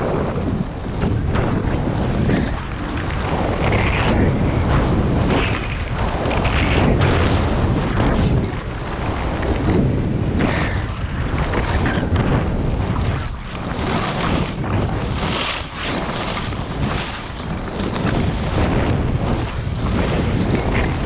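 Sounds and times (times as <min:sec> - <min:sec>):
skis scraping over snow: 0:00.0 - 0:21.0
wind rushing over microphone: 0:00.0 - 0:21.0.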